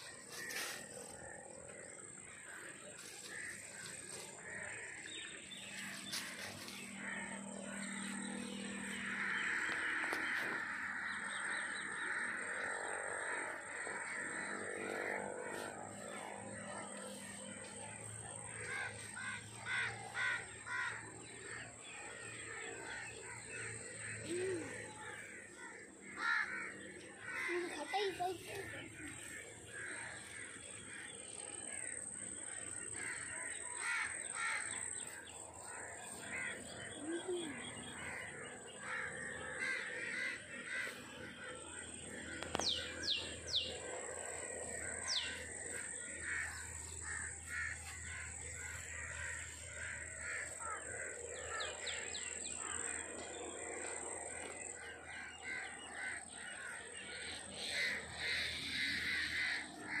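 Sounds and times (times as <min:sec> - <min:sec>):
birds chirping: 0:00.0 - 1:00.0
crows cawing: 0:00.0 - 1:00.0
high-pitched drone: 0:05.0 - 0:21.0.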